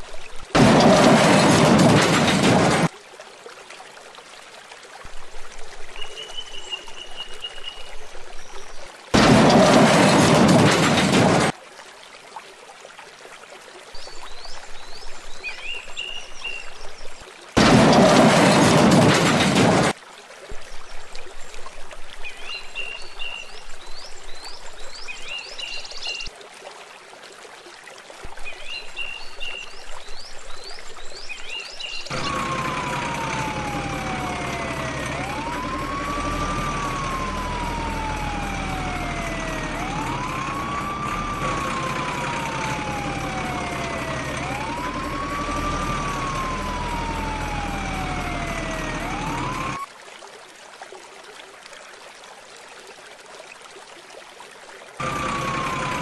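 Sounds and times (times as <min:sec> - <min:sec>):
siren wailing: 0:32.1 - 0:49.9, 0:55.0 - 0:56.0.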